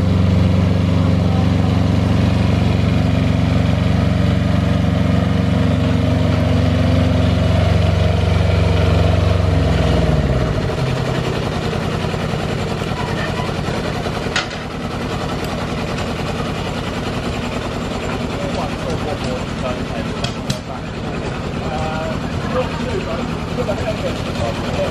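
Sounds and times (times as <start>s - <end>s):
engine running down: 0.0s - 24.9s
small locomotive engine idling: 0.0s - 24.9s.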